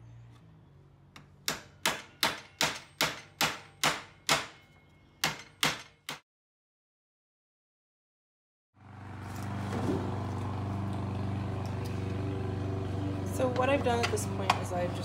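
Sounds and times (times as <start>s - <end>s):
hammer striking nails into wood: 1.4s - 4.6s, 5.2s - 6.2s.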